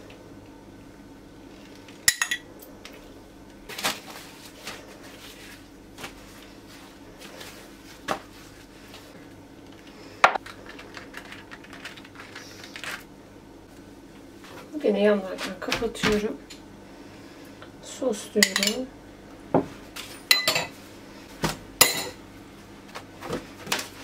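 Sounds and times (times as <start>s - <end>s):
faint steady hum: 0.0s - 24.0s
kitchen utensils clinking: 2.1s - 2.5s, 18.4s - 18.9s, 20.0s - 20.8s, 21.8s - 22.2s.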